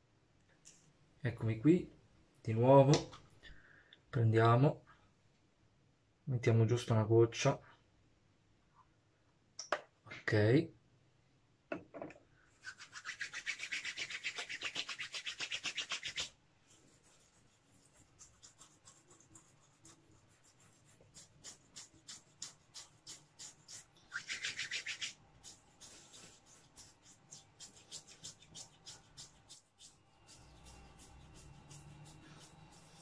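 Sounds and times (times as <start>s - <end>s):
hands rubbing beard: 12.6s - 33.0s.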